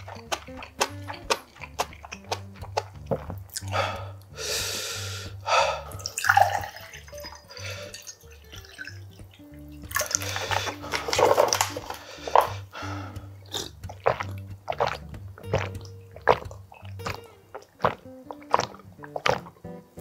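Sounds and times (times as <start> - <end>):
person gulping: 0.0 - 19.7
background music: 0.0 - 20.0
liquid poured into a glass: 6.0 - 9.1.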